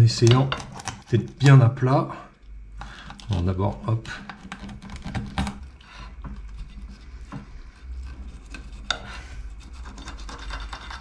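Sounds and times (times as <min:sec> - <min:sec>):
knife rasping through fish: 0:04.1 - 0:11.0.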